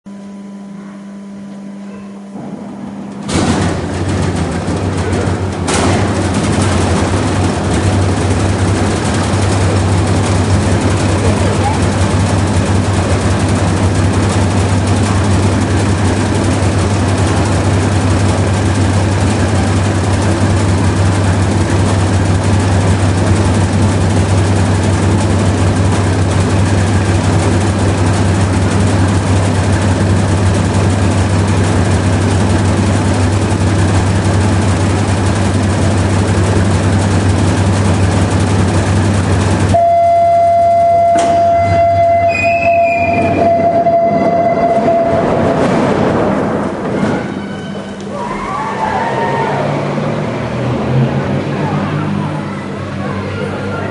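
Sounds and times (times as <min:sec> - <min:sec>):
diesel engines droning: 0:03.1 - 0:53.9
high-pitched tone: 0:39.8 - 0:45.4.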